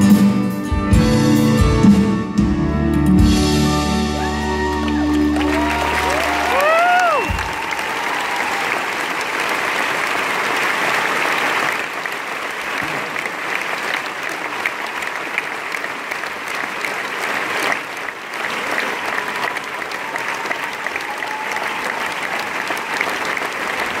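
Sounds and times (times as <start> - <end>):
audience applauding: 3.7 - 24.0.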